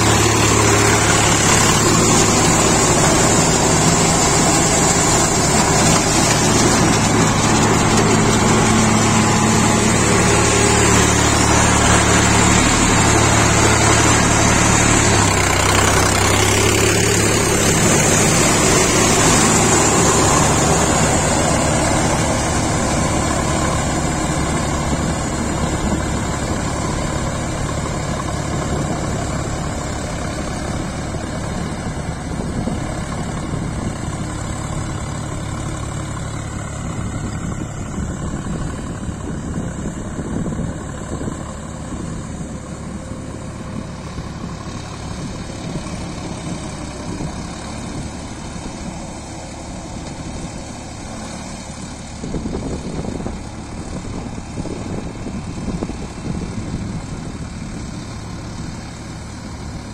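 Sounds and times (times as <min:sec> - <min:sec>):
tractor engine running under load: 0:00.0 - 0:59.9.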